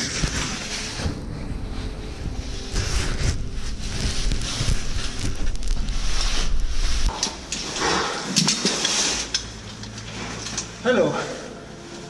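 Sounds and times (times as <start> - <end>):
microphone handling rumble: 0.0 - 8.1.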